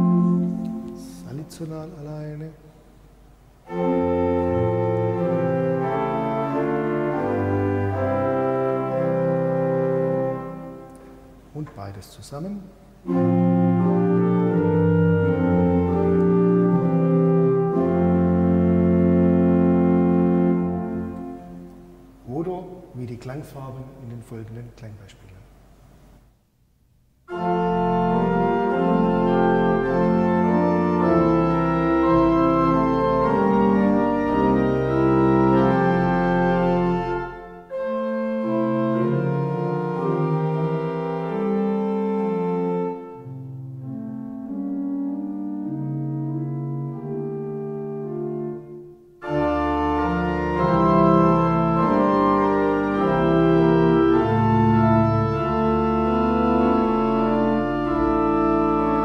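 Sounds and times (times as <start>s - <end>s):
deep organ pedal bass: 0.0s - 25.1s, 27.3s - 59.0s
pipe organ playing chords: 0.0s - 25.2s, 27.3s - 59.0s.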